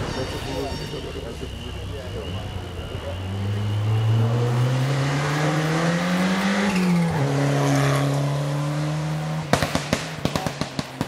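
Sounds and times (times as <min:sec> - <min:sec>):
rally car engine pulling hard: 0:02.7 - 0:10.7.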